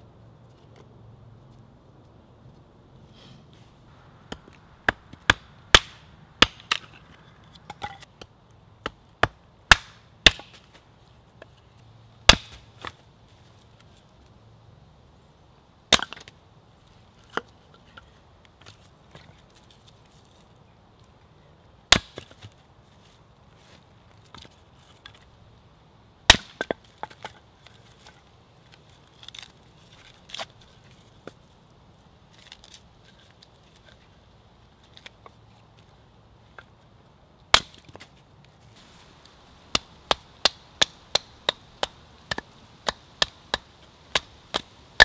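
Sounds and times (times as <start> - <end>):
hatchet chopping logs: 4.2 - 10.8, 12.2 - 13.0, 15.9 - 16.4, 21.9 - 22.6, 26.3 - 28.2, 37.5 - 38.1, 39.6 - 45.0.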